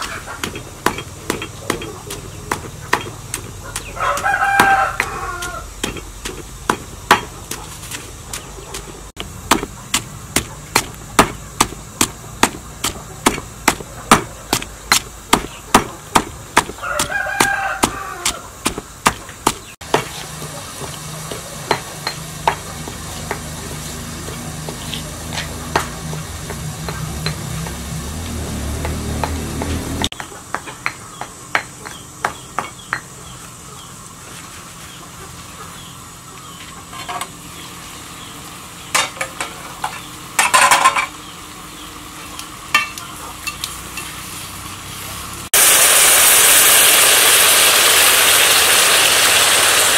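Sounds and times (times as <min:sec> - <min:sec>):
pestle pounding in a mortar: 0:00.0 - 0:33.1
rooster crowing: 0:03.8 - 0:05.8, 0:16.6 - 0:18.6.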